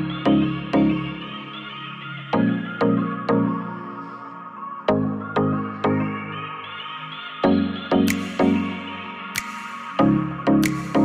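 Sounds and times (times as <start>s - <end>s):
sharp clicks: 9.4s - 10.0s, 10.6s - 11.0s.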